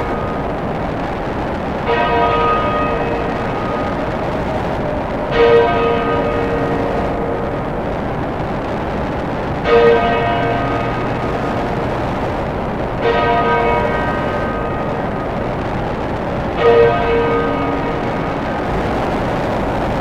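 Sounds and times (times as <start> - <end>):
dense noise drone: 0.0 - 20.0
bell tolling: 1.8 - 8.4, 13.0 - 18.9.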